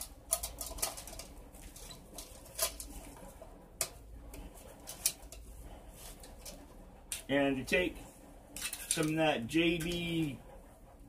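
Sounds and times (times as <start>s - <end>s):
metal lantern parts rattling: 0.0s - 3.2s, 4.8s - 7.3s, 8.6s - 10.0s.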